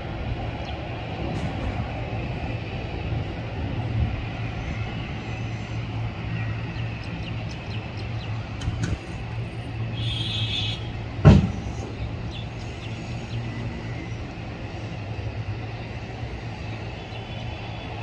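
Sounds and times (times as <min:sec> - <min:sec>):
loud short thump: 0:11.2 - 0:11.7.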